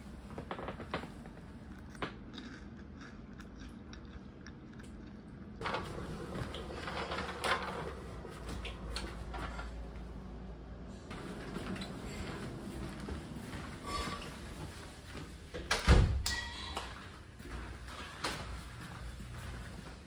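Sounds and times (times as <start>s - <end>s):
person eating chips: 1.6s - 5.6s.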